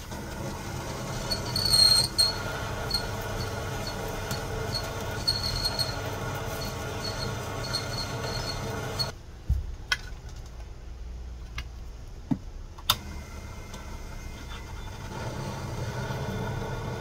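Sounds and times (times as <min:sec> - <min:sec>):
lathe motor hum: 0:00.0 - 0:09.1, 0:13.0 - 0:17.0
metal cutting squeal: 0:01.0 - 0:09.1.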